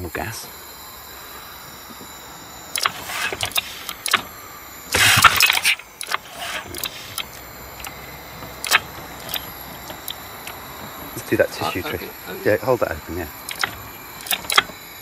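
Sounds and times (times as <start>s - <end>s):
outboard motor cranking: 0.0s - 15.0s
clicks and knocks of controls: 2.8s - 4.3s, 5.0s - 11.0s, 13.4s - 14.8s.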